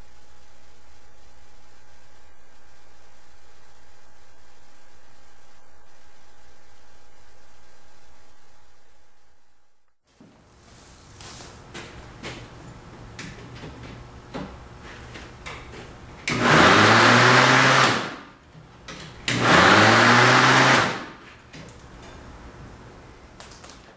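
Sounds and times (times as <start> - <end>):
electric mower motor whining: 16.3 - 18.1, 19.3 - 21.1.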